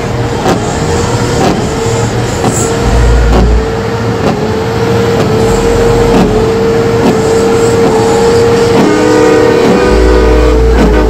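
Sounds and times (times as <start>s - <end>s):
din of engines and crowd: 0.0s - 11.0s
truck horn long steady note: 4.8s - 11.0s.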